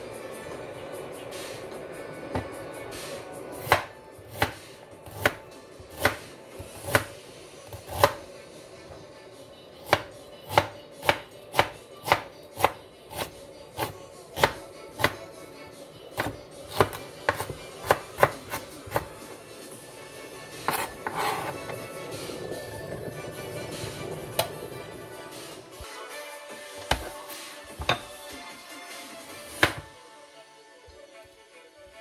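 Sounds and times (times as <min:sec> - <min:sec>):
knife chopping on plastic board: 0:03.6 - 0:08.2, 0:09.8 - 0:15.2, 0:16.2 - 0:19.2, 0:20.6 - 0:21.8, 0:26.8 - 0:27.2, 0:29.5 - 0:29.9.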